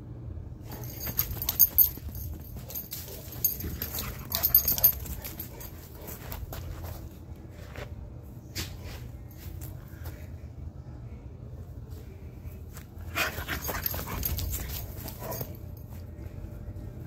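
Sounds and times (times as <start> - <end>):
dog scuffing on dirt: 0.7 - 8.0.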